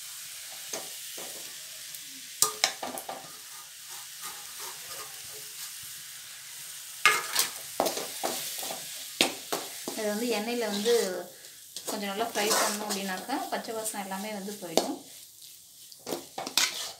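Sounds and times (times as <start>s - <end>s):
food sizzling in oil: 0.0s - 16.9s
ladle scraping and knocking pan: 2.4s - 5.6s, 7.1s - 9.7s, 11.8s - 13.3s, 16.0s - 16.9s.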